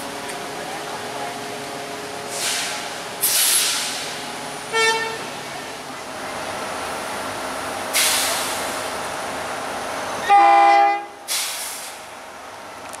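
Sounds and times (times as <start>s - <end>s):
diesel railcar humming: 0.0s - 13.0s
air hissing: 2.3s - 4.2s, 11.3s - 12.1s
multi-tone train horn blast: 4.7s - 5.3s, 10.2s - 11.2s.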